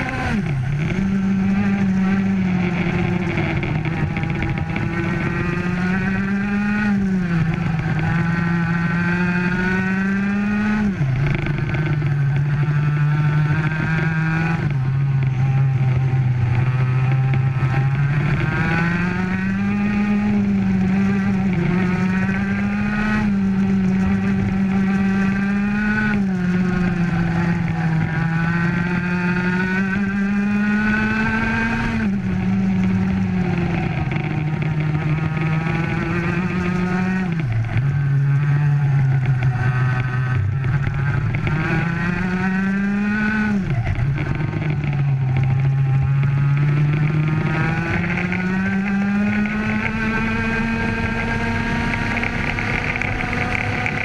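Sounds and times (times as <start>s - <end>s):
kart engine at full throttle: 0.0s - 54.0s.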